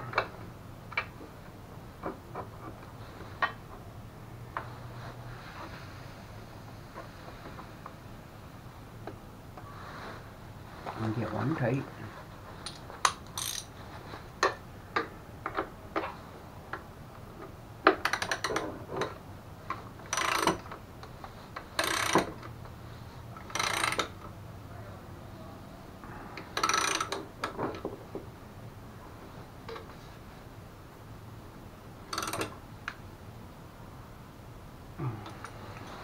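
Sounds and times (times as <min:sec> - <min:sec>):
ratchet wrench clicking: 0:12.6 - 0:13.7, 0:20.1 - 0:20.6, 0:21.8 - 0:22.3, 0:23.5 - 0:24.2, 0:26.6 - 0:27.2, 0:32.1 - 0:32.5.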